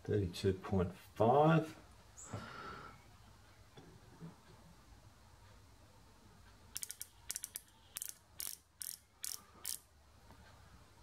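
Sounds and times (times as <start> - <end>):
micrometer ratchet clicking: 6.7 - 9.9.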